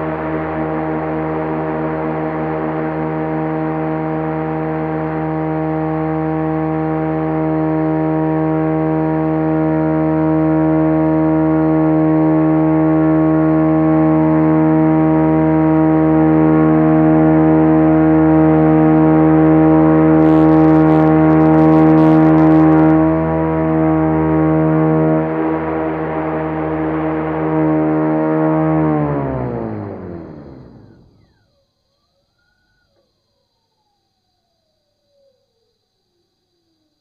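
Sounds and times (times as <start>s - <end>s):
rotor spinning hum: 0.0s - 31.6s.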